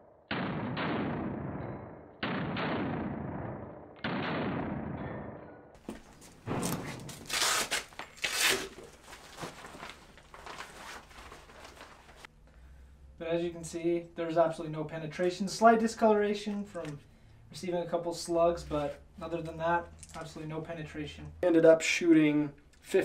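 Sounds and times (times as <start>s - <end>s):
rustling: 5.8s - 12.3s
hook-and-loop straps ripping: 6.7s - 9.0s.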